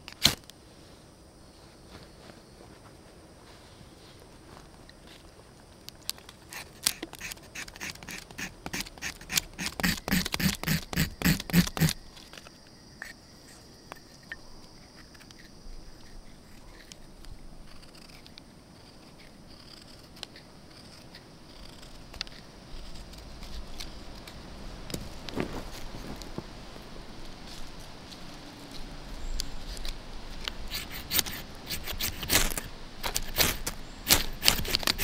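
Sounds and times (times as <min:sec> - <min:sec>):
knife scraping wood: 0:06.4 - 0:12.4, 0:17.6 - 0:24.4, 0:29.7 - 0:35.0.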